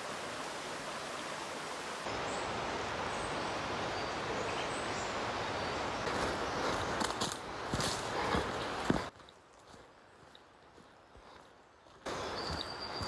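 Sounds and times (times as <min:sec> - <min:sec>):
rushing outdoor ambient noise: 0:00.0 - 0:13.0
faint high chirps: 0:12.1 - 0:13.0.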